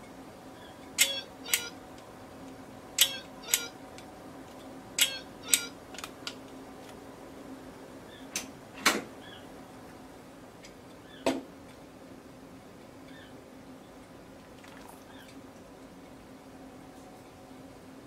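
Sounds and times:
kitchen timer beeping: 1.0s - 1.8s, 3.0s - 3.8s, 5.0s - 5.7s.

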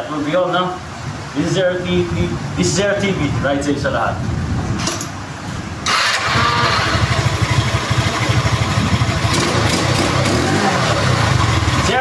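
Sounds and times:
scooter engine starting and idling: 5.8s - 12.0s.

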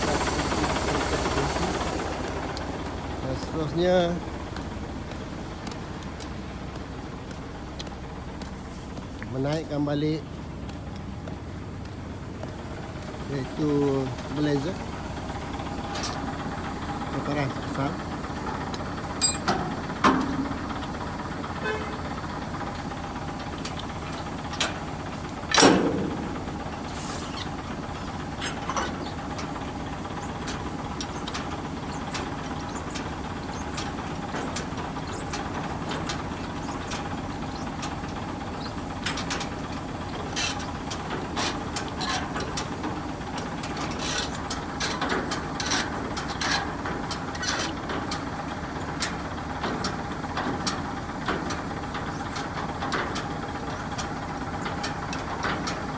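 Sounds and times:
diesel engine idling: 0.0s - 55.9s
metal clicks and knocks: 18.5s - 21.0s.

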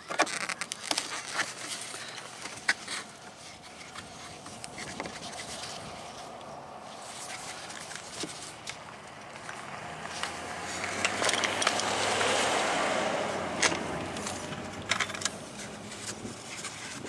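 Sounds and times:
vehicle passing: 4.2s - 17.0s.

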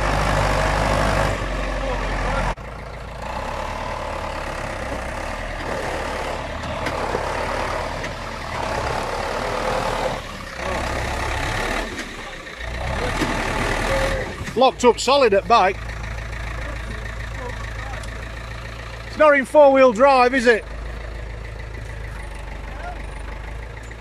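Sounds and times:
tractor diesel engine running: 0.0s - 24.0s.

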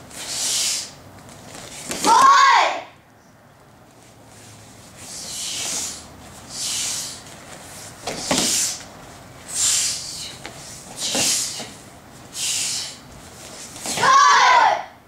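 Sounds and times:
sharp hissing swishes of movement: 0.1s - 1.0s, 4.3s - 14.0s.

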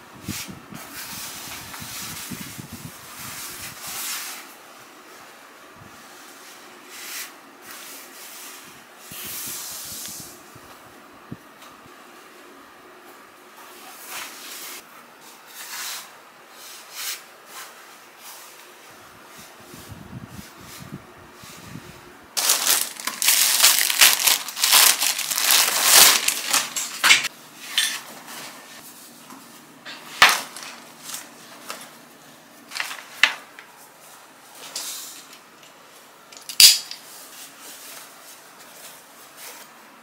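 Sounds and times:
packaging and cloth rustling: 22.4s - 27.3s, 32.7s - 33.3s.

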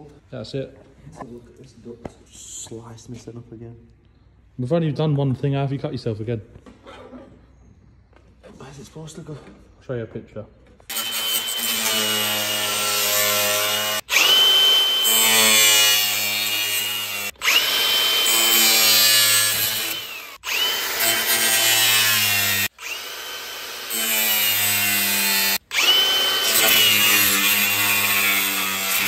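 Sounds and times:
angle grinder cutting plastic: 10.9s - 29.0s.

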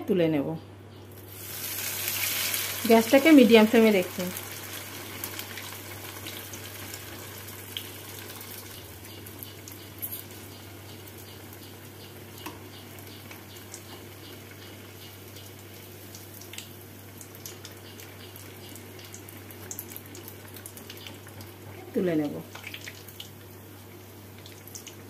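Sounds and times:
fish deep-frying in hot oil: 1.2s - 25.0s
oil crackles and pops: 4.0s - 10.3s, 12.3s - 21.8s, 22.5s - 23.6s, 24.3s - 25.0s.

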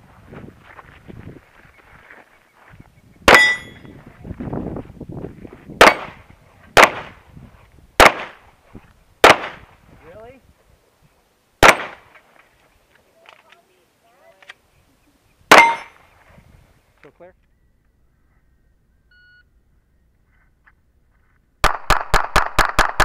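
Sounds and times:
metallic ring: 3.4s - 3.9s
handgun shots: 11.6s - 12.0s.

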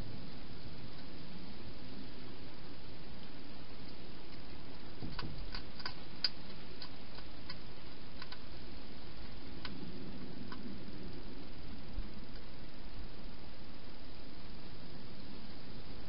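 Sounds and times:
background hiss: 0.0s - 16.0s
hedgehog eating crunches: 3.2s - 11.0s.

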